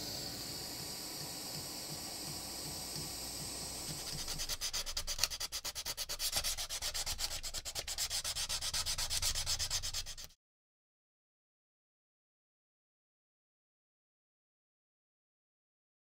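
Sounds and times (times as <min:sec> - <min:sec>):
handheld torch hissing: 0:00.0 - 0:05.0
sandpaper scraping saw blade: 0:03.9 - 0:10.4.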